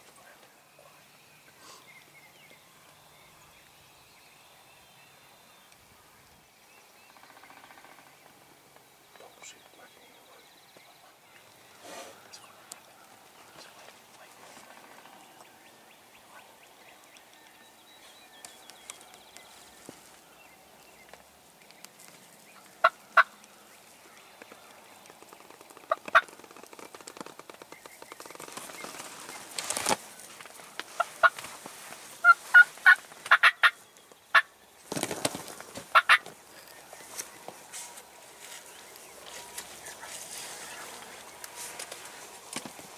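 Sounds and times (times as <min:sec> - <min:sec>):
turkeys gobbling: 0:22.8 - 0:23.4, 0:25.8 - 0:26.4, 0:30.9 - 0:31.4, 0:32.2 - 0:34.5, 0:35.9 - 0:37.3.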